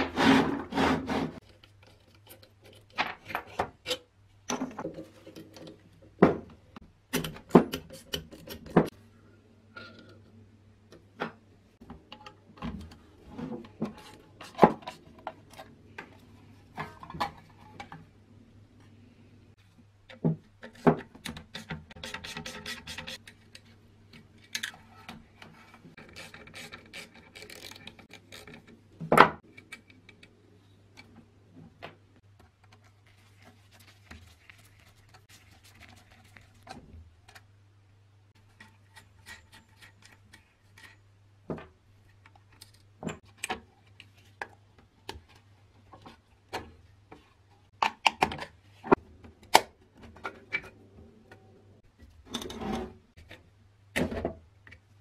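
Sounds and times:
small clicks and scrapes: 0:01.3 - 0:04.1, 0:19.6 - 0:31.2, 0:38.3 - 0:41.1.

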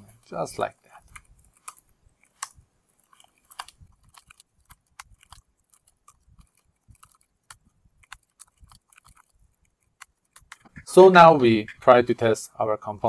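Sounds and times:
computer keyboard typing: 0:01.0 - 0:10.8.

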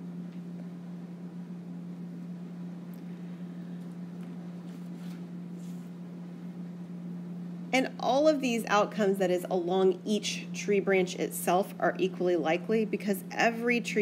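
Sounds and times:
low electrical hum with hiss: 0:00.0 - 0:14.0
faint soft scratches: 0:04.6 - 0:05.9.

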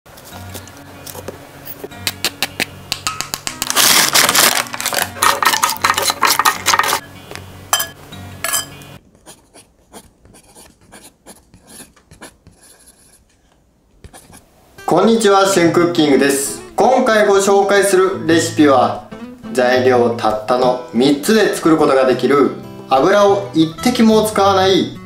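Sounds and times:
chips crunching and crackling: 0:03.3 - 0:06.4
parchment paper rustling: 0:03.4 - 0:07.0.

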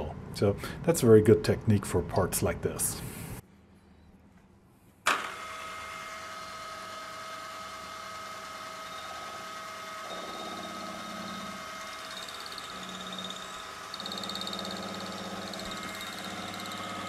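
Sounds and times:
milling machine whining: 0:05.1 - 0:17.0
pulsing buzz of end mill cutting: 0:05.1 - 0:17.0.

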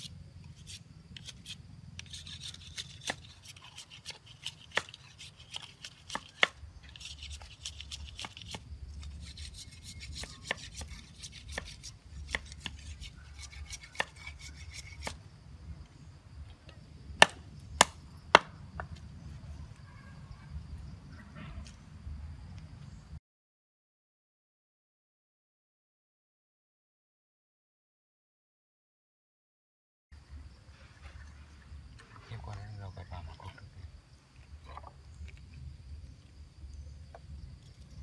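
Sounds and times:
knife whittling bamboo: 0:00.0 - 0:15.2, 0:17.2 - 0:18.6.

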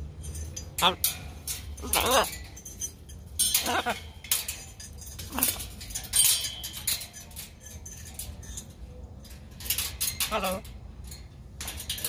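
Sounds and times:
parrot calls: 0:01.8 - 0:02.4, 0:03.6 - 0:04.2.

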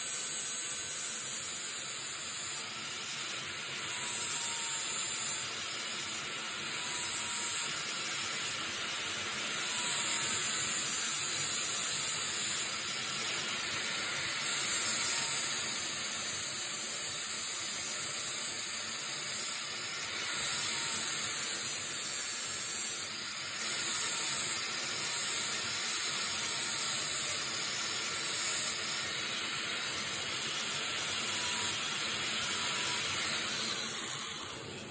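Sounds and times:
angle grinder grinding metal: 0:00.0 - 0:34.9.

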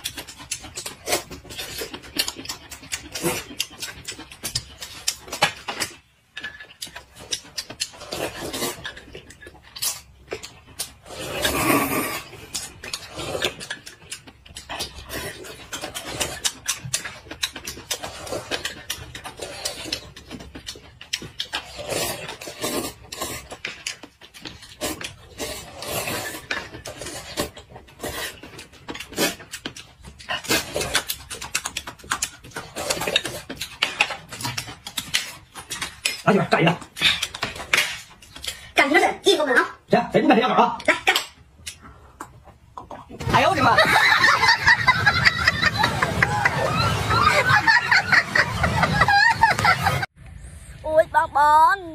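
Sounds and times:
slurping noodles: 0:00.0 - 0:05.2, 0:07.1 - 0:36.2
chewing: 0:00.0 - 0:38.8, 0:40.8 - 0:44.3.

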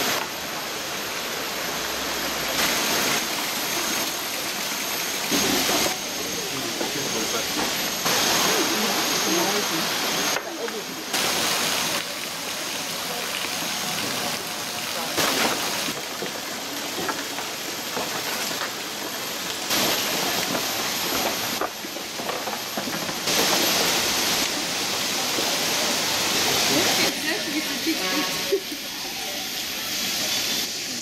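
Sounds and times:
stream rushing over boulders: 0:00.0 - 0:30.8.

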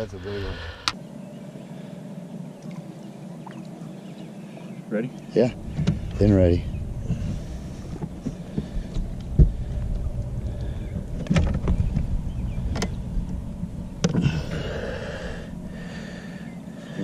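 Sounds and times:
steady low rumble: 0:00.0 - 0:01.4, 0:05.4 - 0:17.0.

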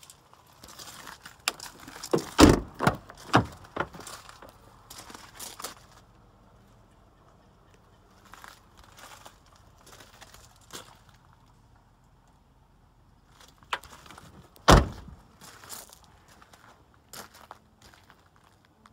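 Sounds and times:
car door opening clicks and clunks: 0:01.5 - 0:04.4, 0:14.6 - 0:15.2.

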